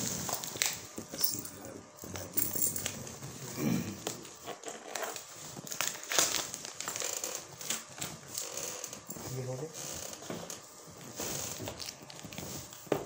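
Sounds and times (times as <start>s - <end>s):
paper and tape crinkling: 4.1s - 13.0s.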